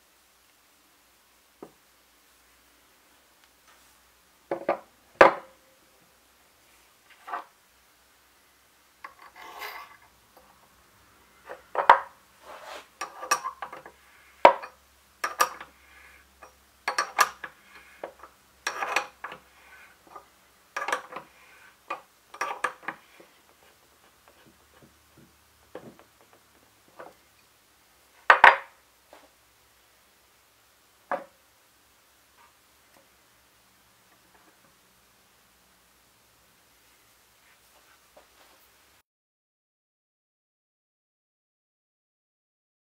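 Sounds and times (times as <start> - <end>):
metal scrape: 9.1 - 10.1, 12.4 - 14.3, 16.9 - 20.0.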